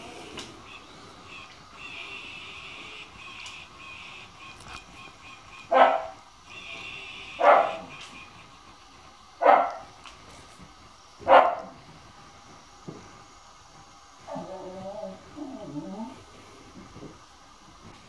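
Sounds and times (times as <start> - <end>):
dog barking: 5.7 - 6.2, 7.4 - 7.9, 9.4 - 9.9, 11.2 - 11.8.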